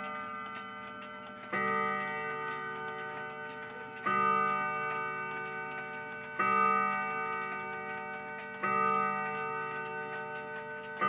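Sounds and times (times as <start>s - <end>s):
clock striking: 0.0s - 11.0s
clock ticking: 0.0s - 11.0s.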